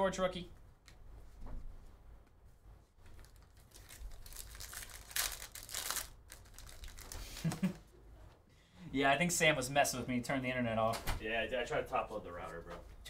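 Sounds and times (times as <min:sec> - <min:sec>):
plastic wrapper crinkling and tearing: 0:03.1 - 0:07.7.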